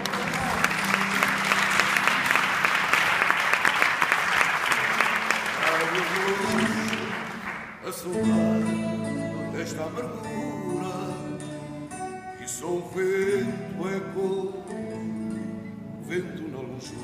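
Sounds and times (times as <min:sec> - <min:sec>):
live guitar chords ringing: 0:06.0 - 0:17.0.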